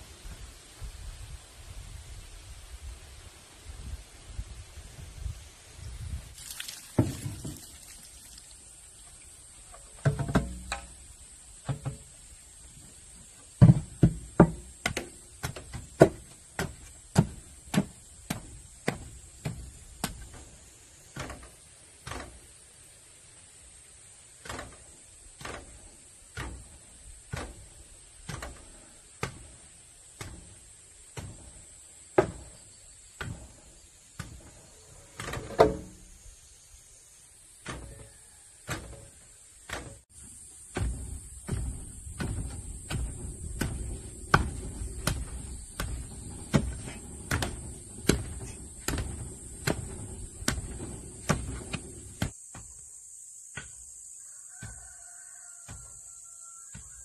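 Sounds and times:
pole tamping earth dull thuds: 6.0 - 8.7, 9.4 - 22.6, 24.3 - 36.5, 37.4 - 52.9, 53.5 - 57.0.

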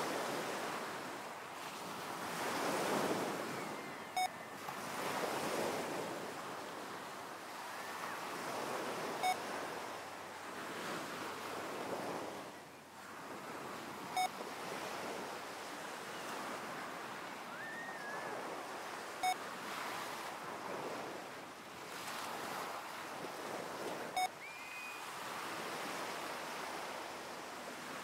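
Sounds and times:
ocean waves on a shore: 0.0 - 28.0
short electronic beeps: 4.2 - 4.4, 9.2 - 9.4, 24.2 - 24.6.

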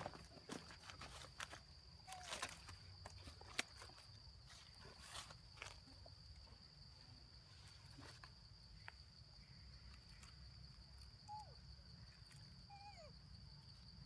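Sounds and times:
insect drone: 0.0 - 14.0.

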